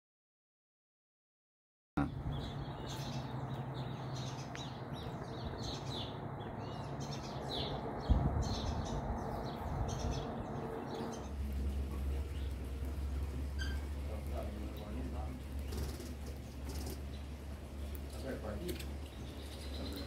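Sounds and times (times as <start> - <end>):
small birds chirping: 2.0 - 20.0
steady background noise: 2.0 - 20.0
low hum: 4.1 - 18.1.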